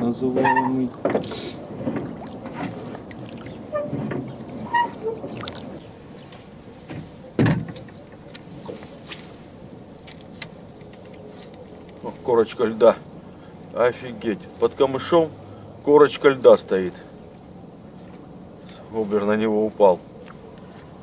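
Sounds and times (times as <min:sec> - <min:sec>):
knocks and clicks on boat: 0:00.0 - 0:08.8, 0:09.9 - 0:12.6
light water sounds: 0:00.0 - 0:13.6.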